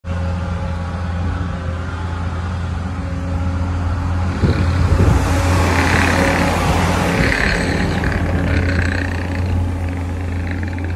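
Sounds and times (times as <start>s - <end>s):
diesel engine humming: 0.0s - 10.9s
rattling and knocking: 4.3s - 10.9s.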